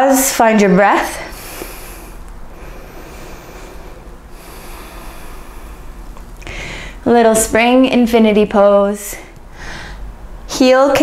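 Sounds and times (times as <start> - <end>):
woman breathing slowly: 1.1 - 7.1, 9.1 - 10.2.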